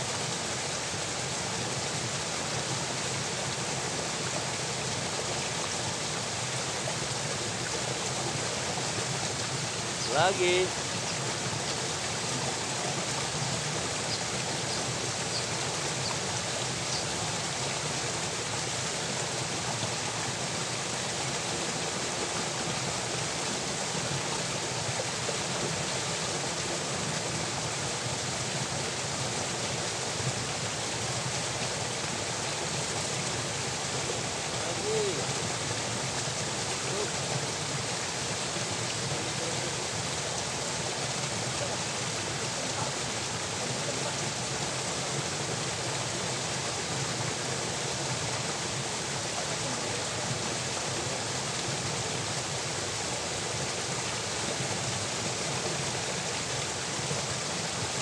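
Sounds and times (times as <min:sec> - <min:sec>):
water rushing from culvert: 0:00.0 - 0:58.0.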